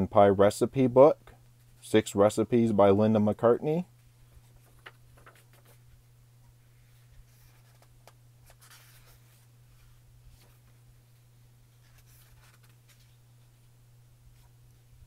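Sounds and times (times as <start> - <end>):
steady low hum: 0.0 - 15.0
paper pages turning: 4.4 - 6.0, 6.8 - 10.8, 11.8 - 13.2.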